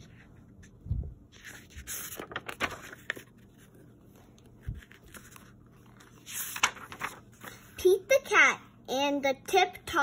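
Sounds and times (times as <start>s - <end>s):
book pages turning: 0.0s - 7.8s.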